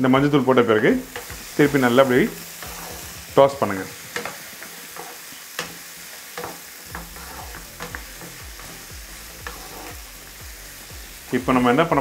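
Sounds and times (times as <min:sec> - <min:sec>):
vegetables sizzling in pan: 0:00.0 - 0:12.0
spatula knocking and scraping pan: 0:01.0 - 0:10.0.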